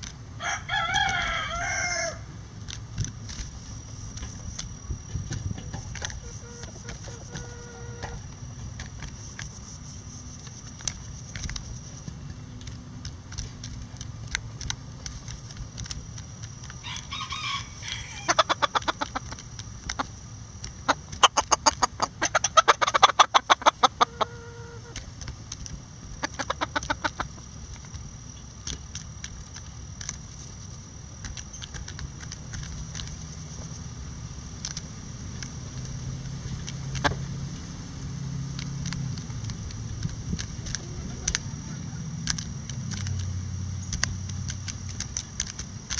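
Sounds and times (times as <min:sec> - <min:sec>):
chickens clucking: 0:00.0 - 0:12.2, 0:15.0 - 0:28.0, 0:34.6 - 0:37.9, 0:38.5 - 0:42.7
rapid ticking pulses: 0:00.0 - 0:45.9
chicken call: 0:06.0 - 0:08.2, 0:20.9 - 0:25.0.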